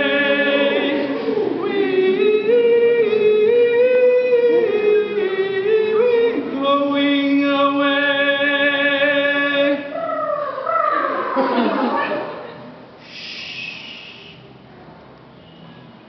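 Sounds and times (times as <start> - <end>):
choir singing: 0.0 - 3.1.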